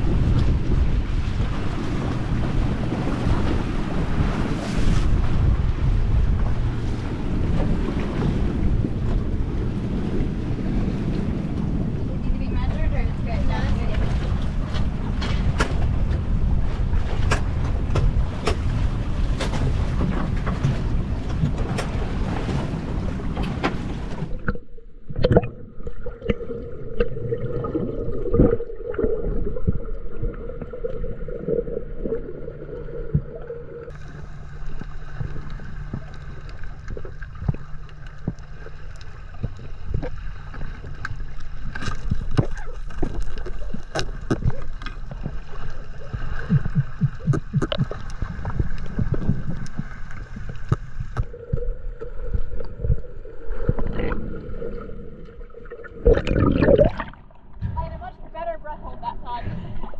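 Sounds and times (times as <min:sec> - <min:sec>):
underwater bubbling: 0:00.0 - 0:15.2, 0:15.9 - 0:57.9
wind buffeting microphone: 0:00.0 - 0:24.4
underwater hum: 0:00.0 - 0:59.9.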